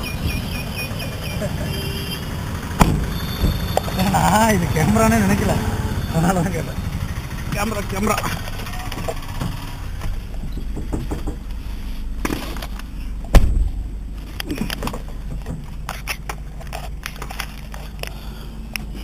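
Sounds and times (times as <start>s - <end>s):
road and engine rumble: 0.0s - 19.0s
loud thump: 2.8s - 3.7s, 13.3s - 13.8s
small knocks and rattles: 7.5s - 11.6s, 14.5s - 17.9s.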